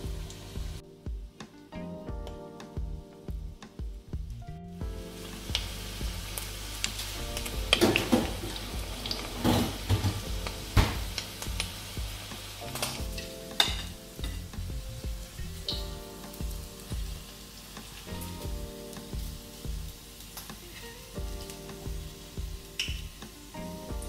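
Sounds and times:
squid sizzling in oil: 5.2s - 13.0s, 16.7s - 23.6s.

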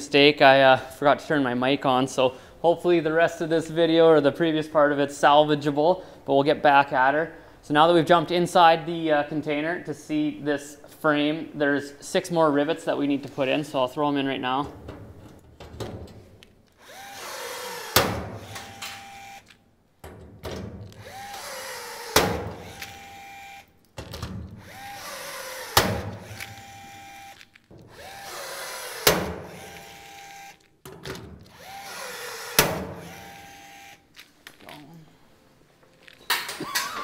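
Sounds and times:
rivet tool motor whirring: 16.7s - 19.6s, 20.9s - 23.8s, 24.5s - 30.7s, 31.4s - 34.0s.

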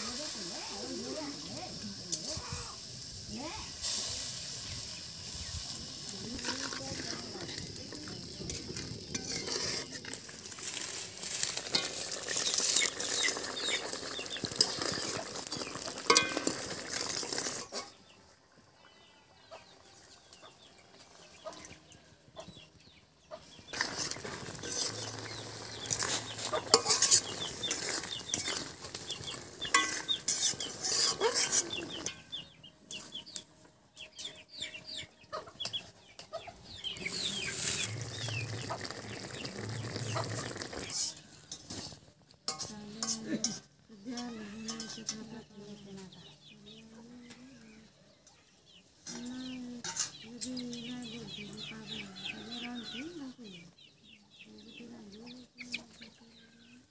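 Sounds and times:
metal utensils clinking in a pot: 6.3s - 18.0s, 23.7s - 33.1s, 40.0s - 45.4s, 49.0s - 50.2s
chickens clucking: 17.0s - 42.2s, 43.0s - 56.9s.

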